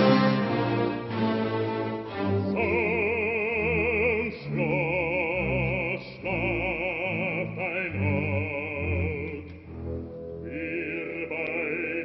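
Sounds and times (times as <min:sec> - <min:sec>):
orchestra playing: 0:00.0 - 0:12.0
opera singer with vibrato: 0:02.6 - 0:09.5, 0:10.4 - 0:12.0.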